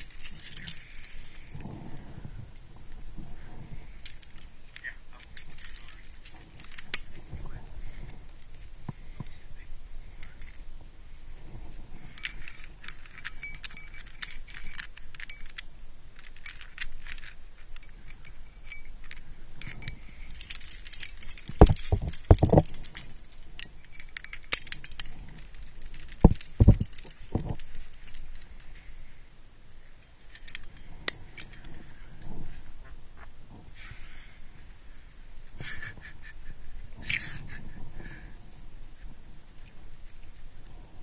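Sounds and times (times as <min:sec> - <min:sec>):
climbing gear jingling: 0:00.0 - 0:09.4, 0:11.4 - 0:28.9, 0:30.0 - 0:32.8.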